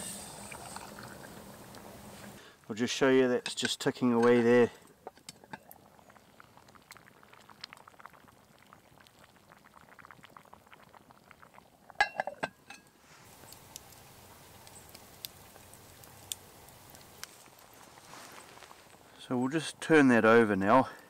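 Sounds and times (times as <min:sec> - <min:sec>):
stew bubbling and popping: 0:00.0 - 0:02.4, 0:03.4 - 0:19.2
metallic clanks of pot lid: 0:12.0 - 0:12.9.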